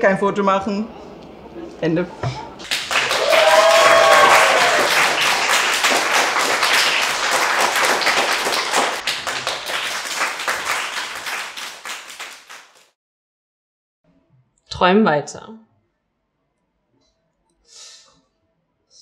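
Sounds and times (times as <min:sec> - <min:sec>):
audience clapping: 0:02.6 - 0:13.0
person whooping: 0:02.9 - 0:05.2.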